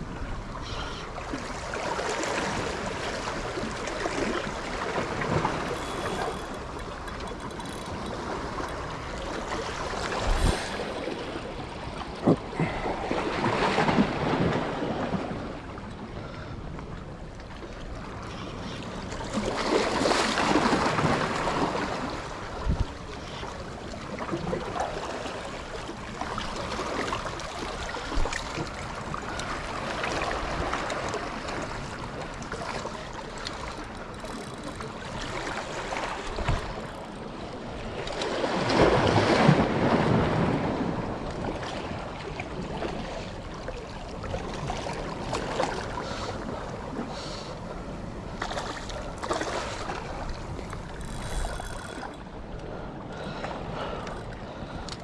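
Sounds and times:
sea waves washing on shore: 0.0 - 55.0
wind noise on microphone: 10.2 - 10.8.

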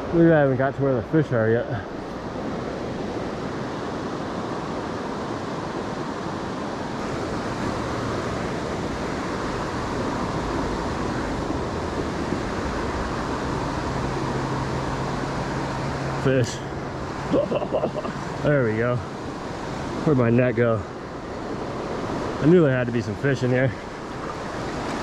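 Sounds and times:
river water rushing over rocks: 1.8 - 25.0.

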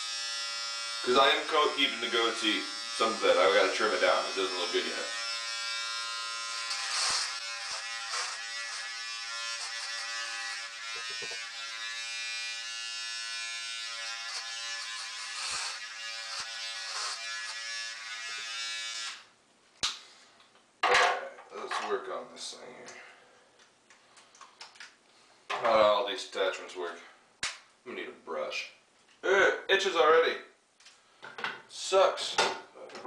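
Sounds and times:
electric beard trimmer buzzing: 0.0 - 19.3.

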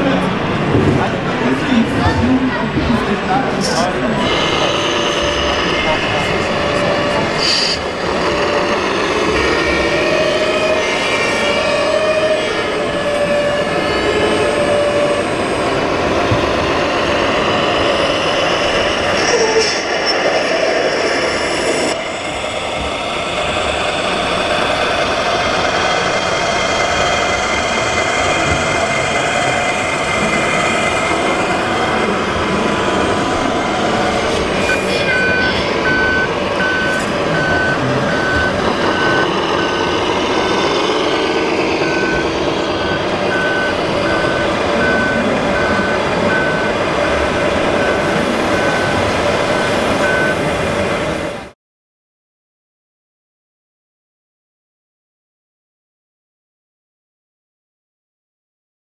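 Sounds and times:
steady noisy background: 0.0 - 51.6
short high reversing beeps: 34.7 - 40.9.

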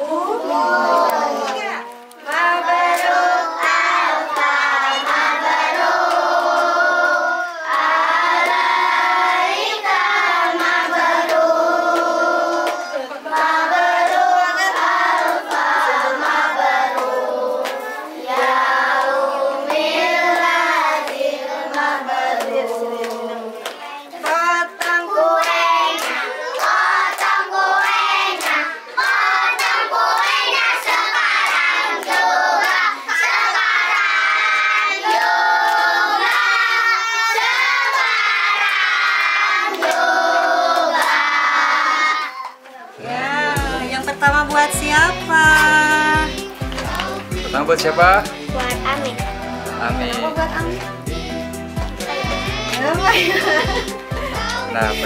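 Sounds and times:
children singing in unison: 0.0 - 55.0
hands clapping: 5.9 - 6.7, 10.6 - 32.9, 35.0 - 36.6, 37.8 - 40.1, 43.6 - 55.0.

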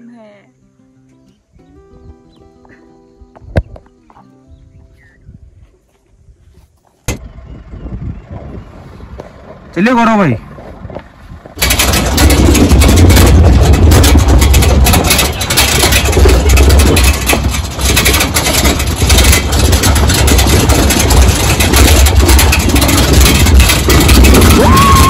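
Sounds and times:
vehicle rumbling over rough track: 7.0 - 25.0
vehicle rattling: 7.1 - 25.0.

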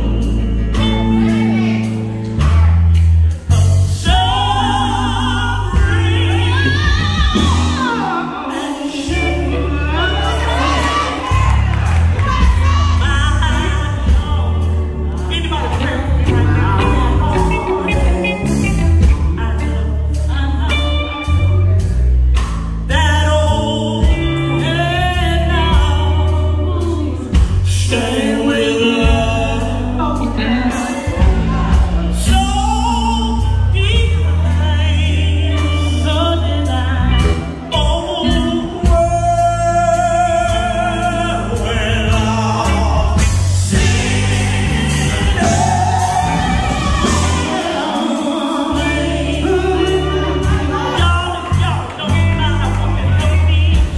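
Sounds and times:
bass guitar: 0.0 - 53.9
electric guitar: 0.0 - 53.9
female vocal group singing: 3.9 - 21.3, 24.4 - 32.9, 41.2 - 52.2.

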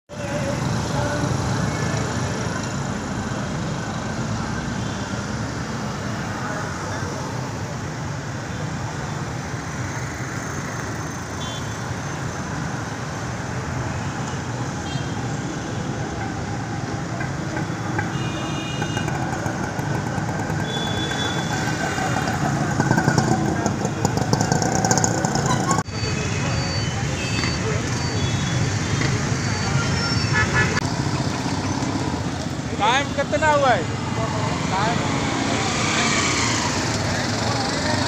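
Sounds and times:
vehicles passing: 0.1 - 38.0
vehicle horn toots: 20.6 - 21.8.

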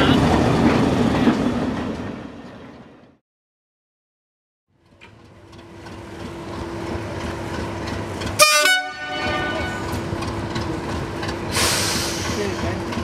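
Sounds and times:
diesel locomotive engine running: 4.7 - 13.0
locomotive horn blast: 8.4 - 10.0.

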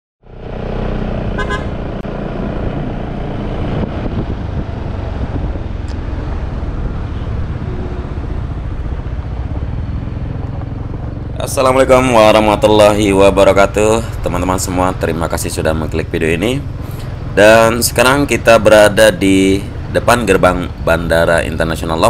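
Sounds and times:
road and wind rumble: 0.2 - 22.0
short horn toot: 1.4 - 1.8.

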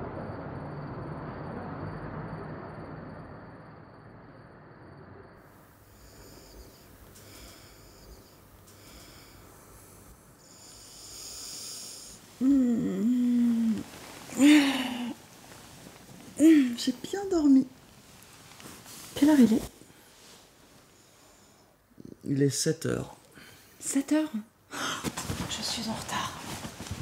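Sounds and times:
low city rumble: 0.0 - 22.3
hissy sleeping breaths: 5.6 - 16.9, 17.8 - 22.0
person moaning: 12.4 - 15.2.

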